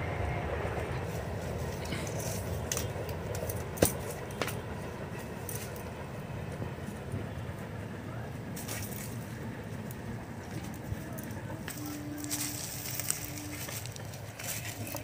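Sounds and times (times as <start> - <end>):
steady low rumble: 0.0 - 15.0.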